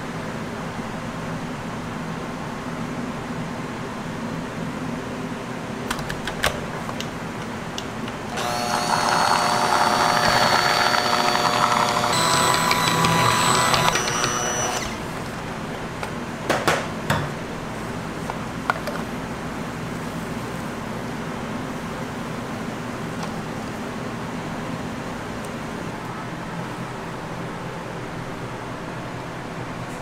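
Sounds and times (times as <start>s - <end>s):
immersion blender motor whine: 8.3s - 15.1s.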